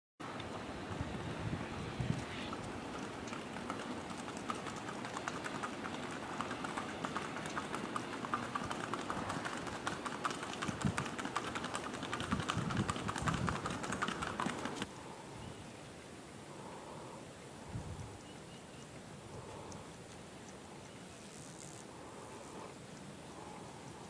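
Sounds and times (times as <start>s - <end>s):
rapid hoofbeats on hard path: 0.6s - 14.9s.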